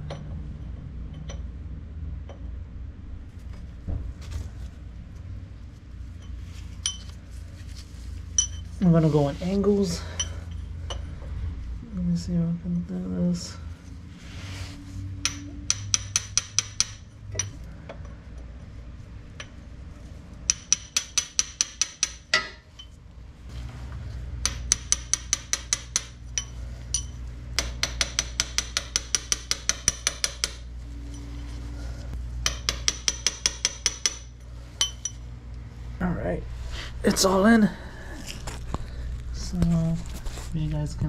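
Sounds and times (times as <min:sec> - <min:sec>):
metal tool tapping on metal: 0:15.2 - 0:17.6, 0:20.5 - 0:22.9, 0:24.4 - 0:30.6, 0:32.4 - 0:35.2.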